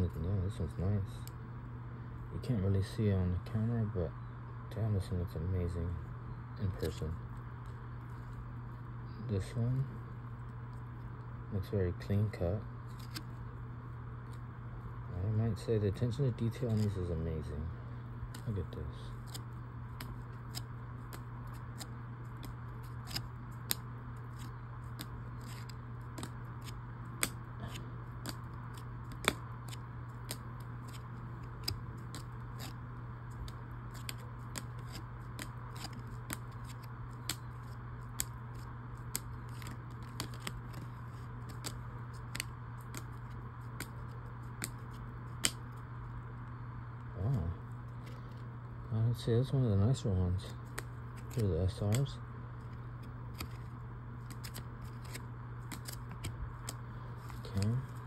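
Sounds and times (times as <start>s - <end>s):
steady low hum: 0.0s - 58.0s
trading cards clicking: 18.3s - 32.8s, 33.4s - 45.7s, 50.6s - 52.1s, 52.7s - 58.0s.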